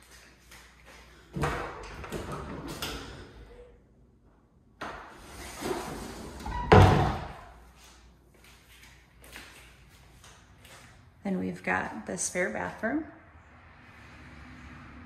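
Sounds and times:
closet doors rattling and sliding: 1.4s - 3.4s, 5.1s - 7.5s
door banging shut: 6.4s - 7.5s.

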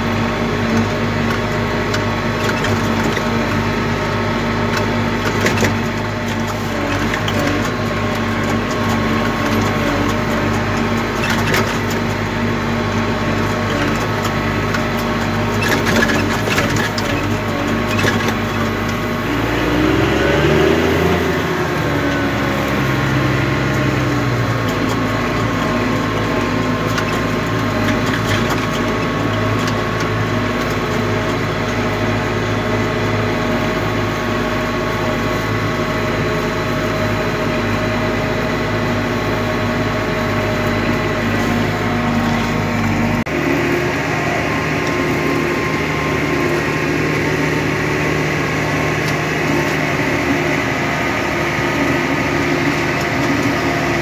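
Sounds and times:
tractor engine running under load: 0.0s - 54.0s.

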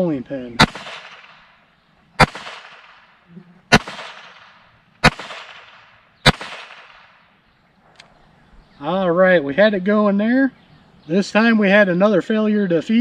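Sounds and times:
pistol shots echoing: 0.6s - 1.6s, 2.2s - 7.3s.

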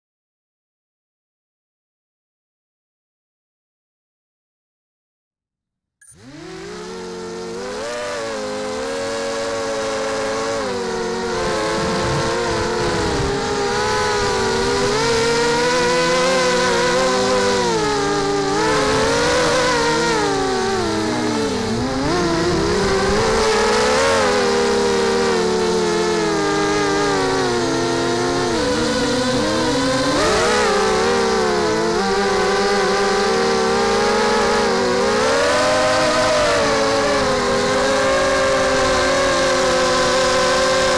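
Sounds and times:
quadcopter motors whining: 6.0s - 40.9s.

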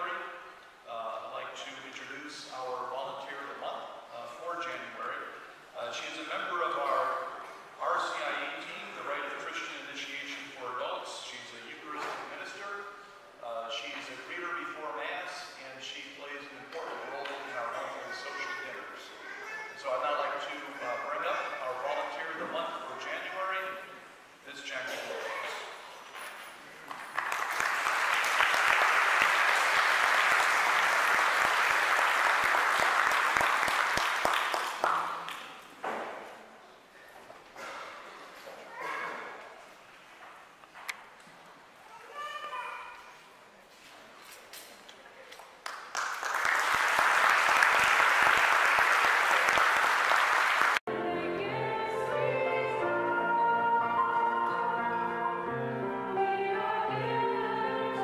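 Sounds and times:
congregation applauding: 26.9s - 35.6s, 45.6s - 50.9s.

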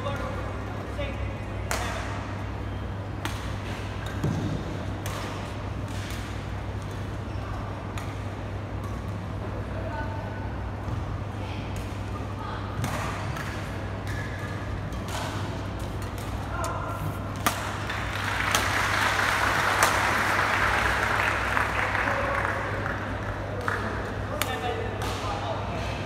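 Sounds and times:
rackets striking shuttlecock: 3.1s - 7.1s, 12.8s - 17.9s.

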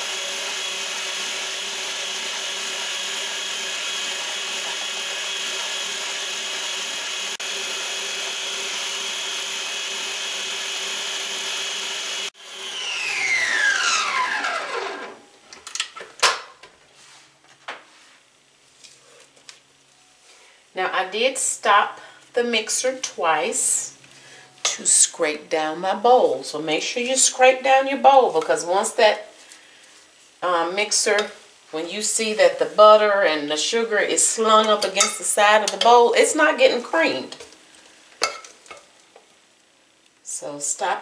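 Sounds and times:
stand mixer motor running: 0.0s - 15.2s.

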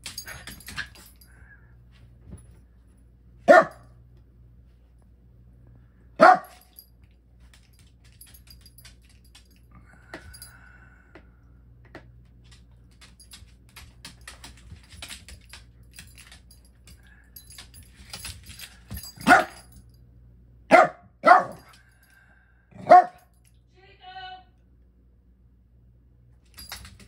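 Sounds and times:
dog claws skittering on wood floor: 0.0s - 1.3s, 11.9s - 19.6s, 26.4s - 27.0s
dog barking: 3.4s - 3.8s, 6.2s - 6.6s, 19.2s - 19.6s, 20.7s - 21.7s, 22.8s - 23.2s.

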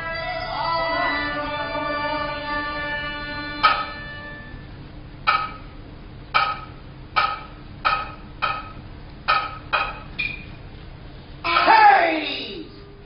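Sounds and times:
sharp high percussion strikes: 2.9s - 5.8s, 6.4s - 10.1s, 11.5s - 12.2s.

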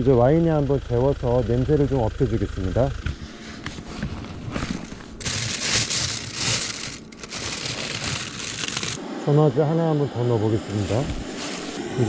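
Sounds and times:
rustling and crinkling handling: 3.3s - 9.0s.

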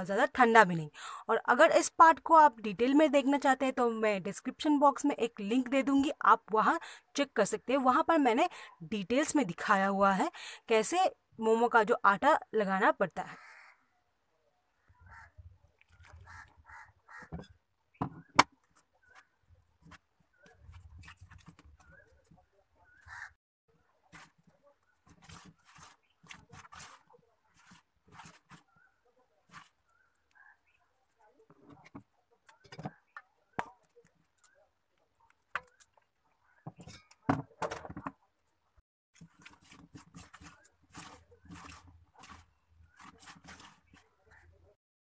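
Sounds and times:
hand mixing flour in bowl: 24.0s - 30.2s, 39.2s - 44.6s.

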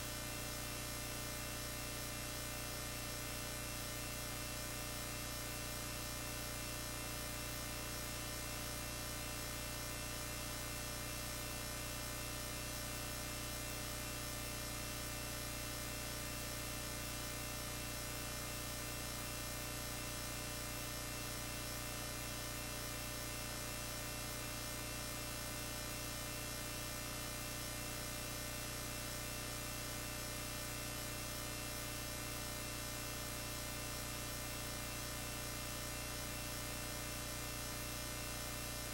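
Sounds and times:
electrical mains hum: 0.0s - 38.9s.

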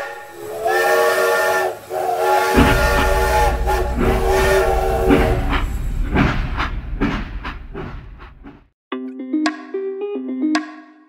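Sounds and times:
steam locomotive whistle: 0.0s - 6.1s
train rumbling: 0.0s - 8.7s.

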